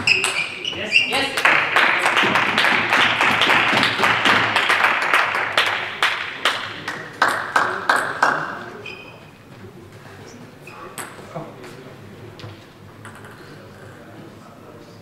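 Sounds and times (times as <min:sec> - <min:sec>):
spectators applauding: 0:01.1 - 0:08.7.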